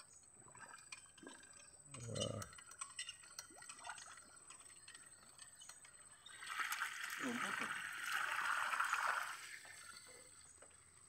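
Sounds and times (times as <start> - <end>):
muddy water dripping and sloshing: 0.0 - 11.0.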